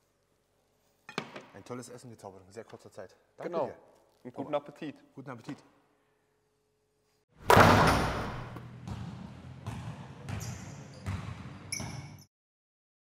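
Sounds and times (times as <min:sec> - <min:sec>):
basketball bouncing: 0:07.4 - 0:12.2.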